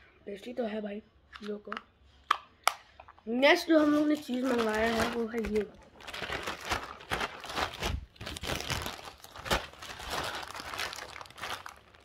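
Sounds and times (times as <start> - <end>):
plastic mailer bag crinkling: 3.7 - 12.0.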